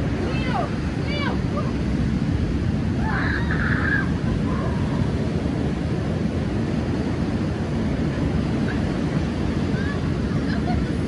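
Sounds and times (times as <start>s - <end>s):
surf breaking on beach: 0.0s - 11.0s
wind buffeting microphone: 0.0s - 11.0s.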